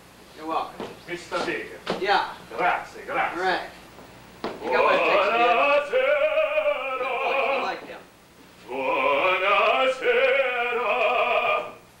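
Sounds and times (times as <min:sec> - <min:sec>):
man singing in operatic style: 0:04.7 - 0:07.8, 0:08.7 - 0:11.8.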